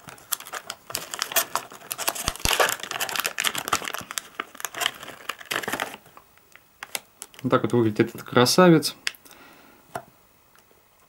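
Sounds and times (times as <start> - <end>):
plastic packaging crinkling: 0.0 - 8.4.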